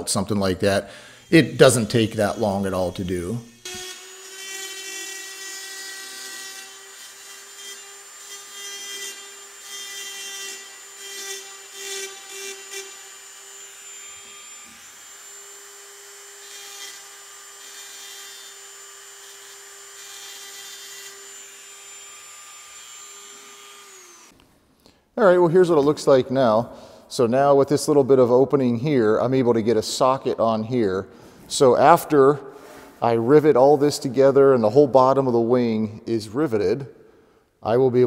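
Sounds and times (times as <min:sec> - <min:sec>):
rotary tool grinding metal: 0:01.2 - 0:24.4.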